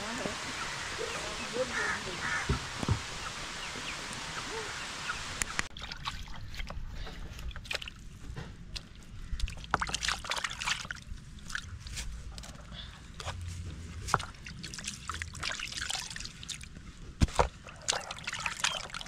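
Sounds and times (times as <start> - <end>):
water sloshing and splashing: 5.4 - 19.0.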